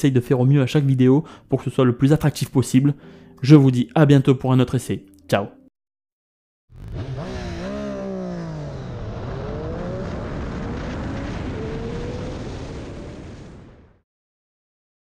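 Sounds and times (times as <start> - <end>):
motorcycle engine accelerating: 6.7 - 13.2
wind noise: 9.4 - 14.0.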